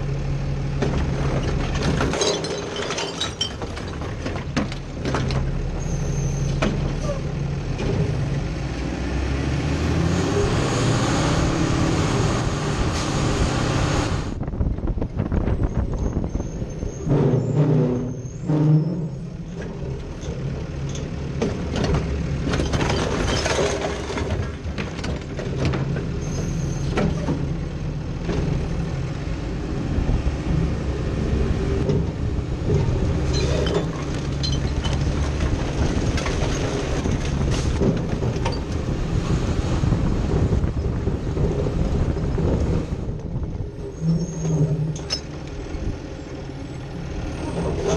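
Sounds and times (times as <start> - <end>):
clanks and knocks from hopper: 0.8 - 5.6, 19.6 - 26.1.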